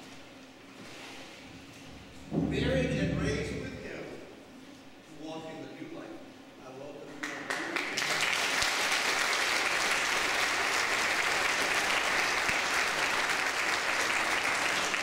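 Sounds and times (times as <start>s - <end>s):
congregation applauding: 7.2s - 15.0s.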